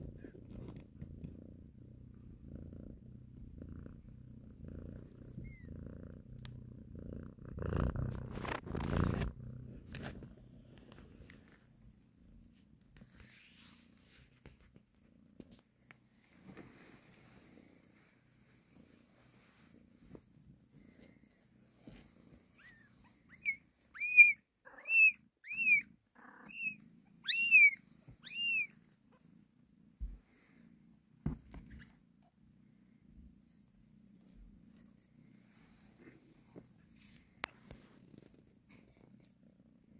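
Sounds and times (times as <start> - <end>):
cat purring: 0.0 - 23.8, 28.8 - 39.9
rustling: 7.8 - 23.6.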